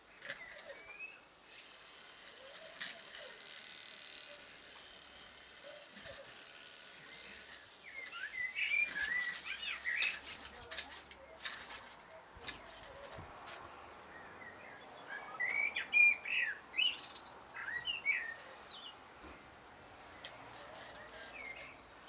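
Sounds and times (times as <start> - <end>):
birds chirping: 6.9 - 22.0
bird warbling song: 7.1 - 11.4, 14.1 - 19.0.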